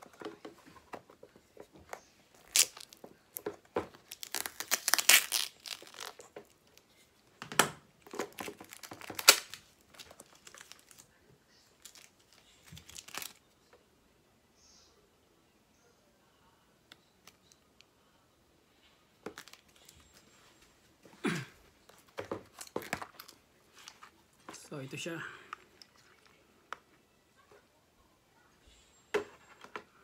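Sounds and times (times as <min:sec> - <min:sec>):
plastic packaging crinkling: 0:02.3 - 0:06.9, 0:08.0 - 0:11.2, 0:11.8 - 0:13.4, 0:19.3 - 0:20.2.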